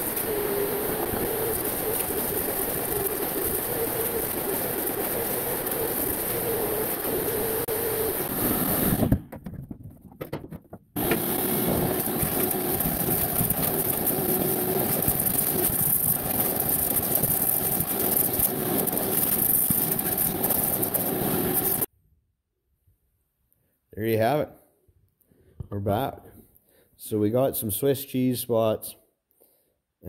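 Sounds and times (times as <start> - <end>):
shop vacuum sucking debris: 11.0 - 21.9.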